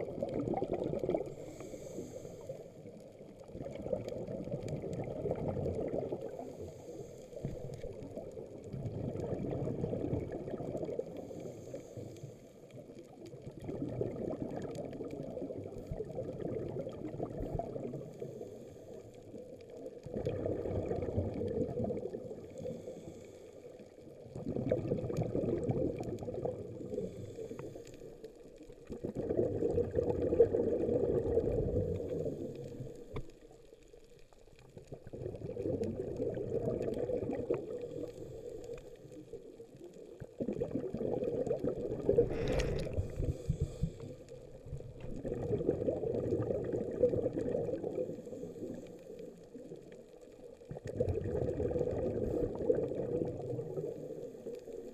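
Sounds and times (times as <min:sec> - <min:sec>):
bubbles gurgling underwater: 0:00.0 - 0:11.6, 0:12.6 - 0:54.9
regulator inhales: 0:01.3 - 0:02.8, 0:06.4 - 0:07.8, 0:11.2 - 0:12.6, 0:22.6 - 0:23.7, 0:26.9 - 0:28.2, 0:42.3 - 0:44.3.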